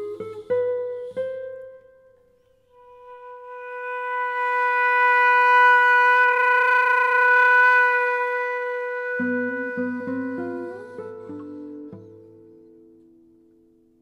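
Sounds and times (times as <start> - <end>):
classical guitar plucked notes: 0.0 - 14.0
flute long note with vibrato: 2.7 - 12.0.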